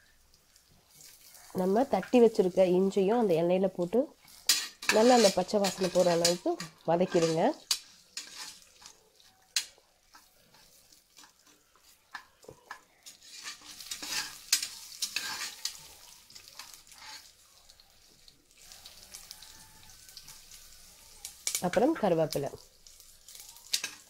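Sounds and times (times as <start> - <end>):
spices sizzling in oil: 0.0 - 24.0
metal spoon scraping pot: 4.2 - 8.9, 13.0 - 15.9, 16.6 - 17.3.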